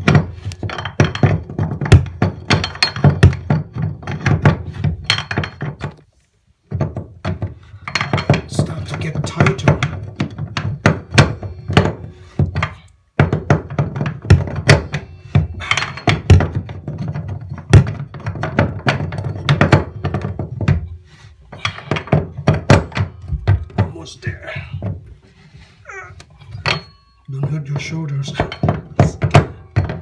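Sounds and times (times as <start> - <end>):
metal tools clanking on drain: 7.8 - 12.0, 13.7 - 20.3, 21.5 - 22.3, 26.4 - 30.0.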